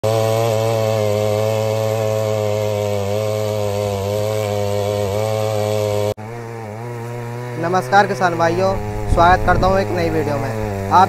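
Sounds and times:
small engine running at high revs: 0.0s - 11.0s.

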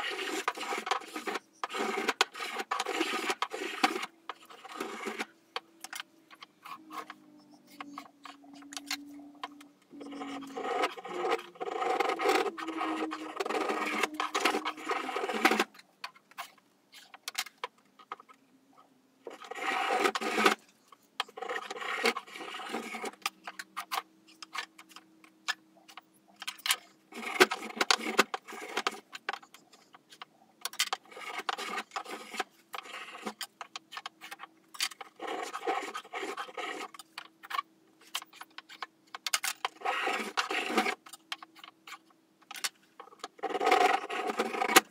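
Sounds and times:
spokeshave scraping wood: 6.5s - 15.8s.

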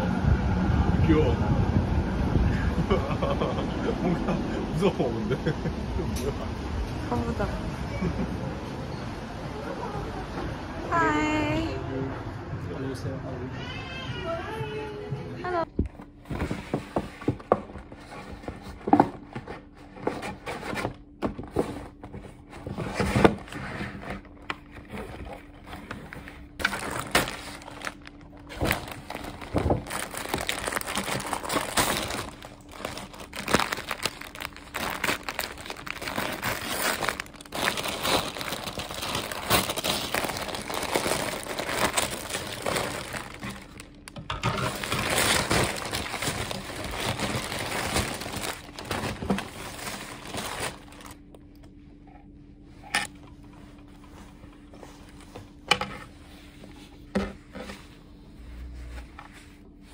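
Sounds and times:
paper bag rustling and crinkling: 16.0s - 51.3s.

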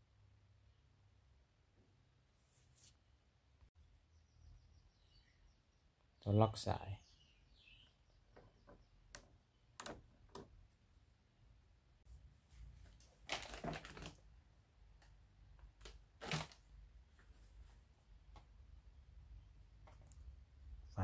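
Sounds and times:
hard plastic clicks and knocks: 8.3s - 10.6s.

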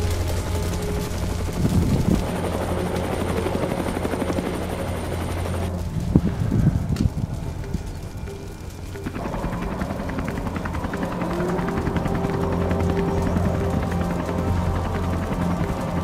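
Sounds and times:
helicopter rotors beating: 0.0s - 16.0s.

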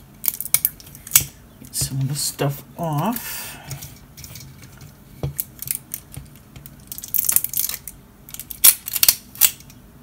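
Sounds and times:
packaging crinkling and tearing: 6.7s - 9.6s.

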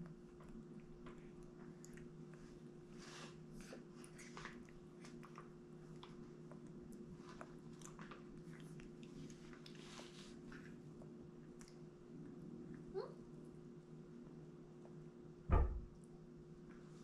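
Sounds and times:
steady low hum: 0.0s - 17.0s
baby chewing and lip-smacking: 3.4s - 11.9s.

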